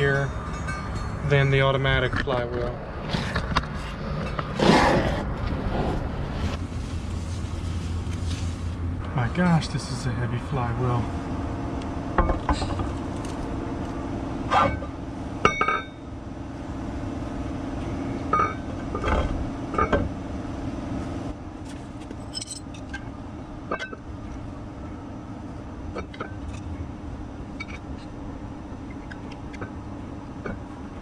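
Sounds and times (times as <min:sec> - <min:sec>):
metal clinks and knocks: 0:00.0 - 0:02.5, 0:22.0 - 0:23.1
steady low hum: 0:00.0 - 0:31.0.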